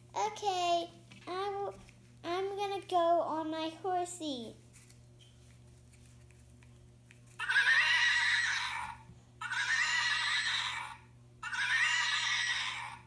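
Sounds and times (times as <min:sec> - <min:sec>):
horse whinnying: 0:07.4 - 0:13.0.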